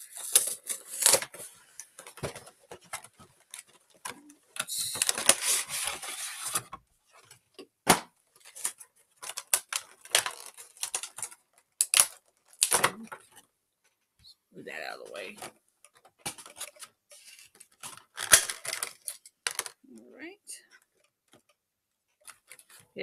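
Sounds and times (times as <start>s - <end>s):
packaging crinkling and rustling: 0.0s - 7.4s, 8.3s - 13.5s, 15.9s - 19.8s, 22.2s - 22.9s.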